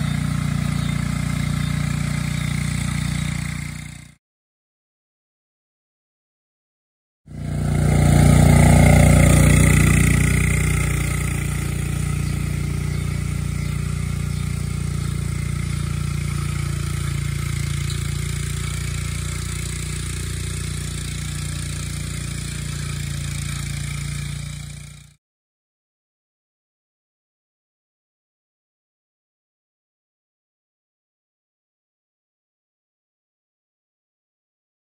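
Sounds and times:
utility vehicle engine running: 0:00.0 - 0:04.2, 0:07.3 - 0:25.2.

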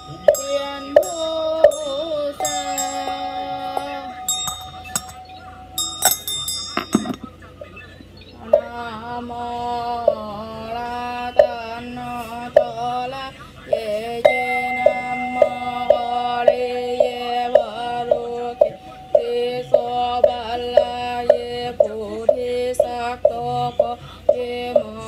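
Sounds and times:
mallet-struck percussion knocks: 0:00.0 - 0:07.4, 0:14.3 - 0:23.4.

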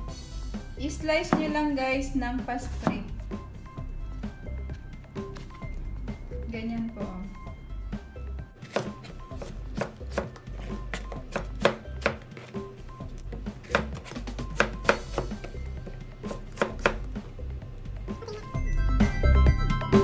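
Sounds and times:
cleaver chopping on plastic board: 0:08.6 - 0:12.5, 0:13.6 - 0:15.6, 0:16.3 - 0:17.0.

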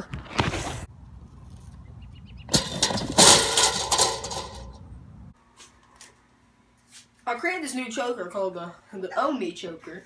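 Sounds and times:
loud scraping and knocking: 0:02.5 - 0:04.9.

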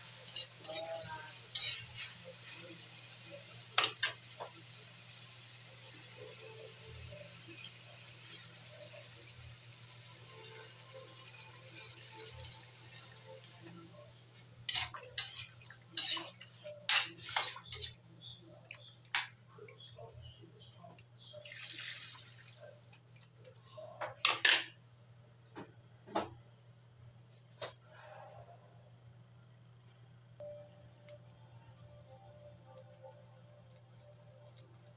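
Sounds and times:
metal ladle clanking against wok: 0:14.7 - 0:15.4
water pouring into a metal wok: 0:21.4 - 0:22.6.

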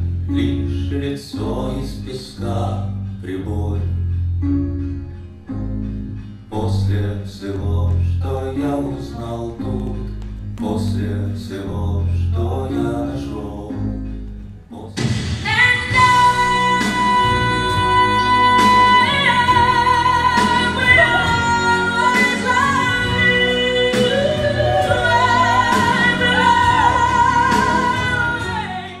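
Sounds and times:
band with drum hits: 0:14.9 - 0:17.9
woman singing with vibrato: 0:15.4 - 0:29.0.

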